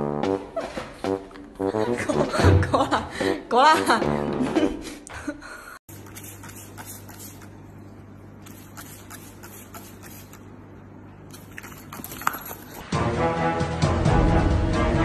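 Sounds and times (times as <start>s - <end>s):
spray bottle squirting: 5.9s - 7.6s, 8.4s - 10.5s, 11.3s - 12.9s
background music: 12.8s - 15.0s.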